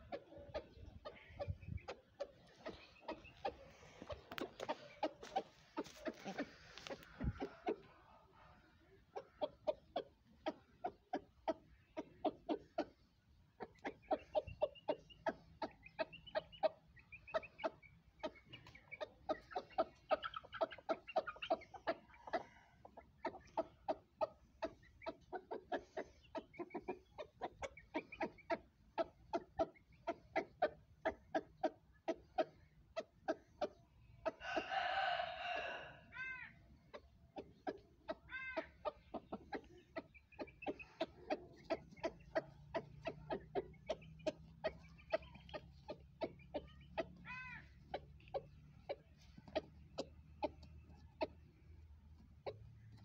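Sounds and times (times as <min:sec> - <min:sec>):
rooster clucking: 0:00.0 - 0:53.0
rooster drawn-out call: 0:34.4 - 0:36.0.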